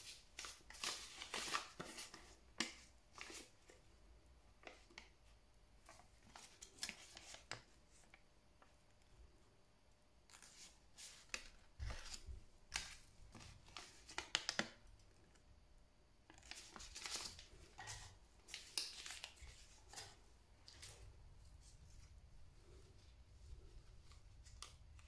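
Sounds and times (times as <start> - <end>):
paper leaflet rustling and crinkling: 0.0 - 3.8, 5.8 - 8.2, 10.3 - 14.8, 16.3 - 25.0.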